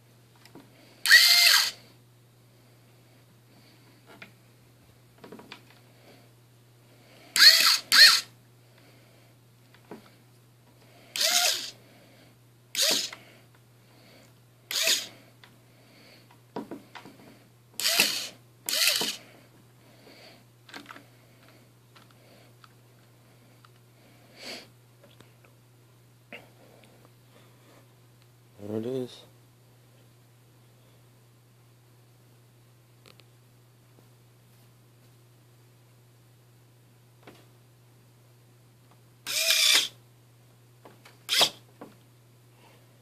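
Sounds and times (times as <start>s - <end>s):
faint steady low hum: 0.0s - 43.0s
small electric motors whirring: 1.0s - 1.8s, 7.4s - 8.3s, 11.1s - 11.8s, 12.7s - 13.2s, 14.7s - 15.2s, 17.8s - 19.2s, 39.3s - 40.0s, 41.3s - 41.6s.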